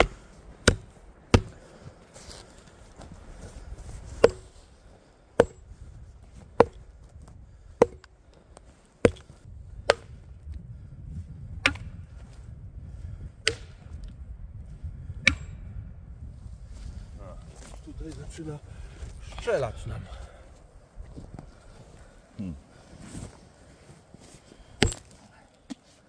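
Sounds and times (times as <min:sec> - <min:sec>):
sledgehammer striking concrete: 0:00.0 - 0:01.5, 0:04.2 - 0:04.5, 0:05.4 - 0:05.6, 0:07.8 - 0:08.0, 0:24.8 - 0:25.1.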